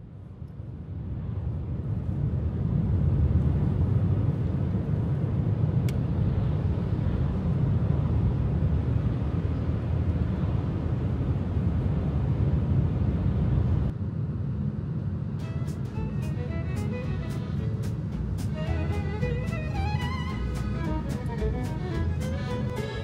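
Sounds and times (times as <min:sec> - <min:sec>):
car engine running: 0:15.4 - 0:23.0
tyres on wet road: 0:15.4 - 0:23.0.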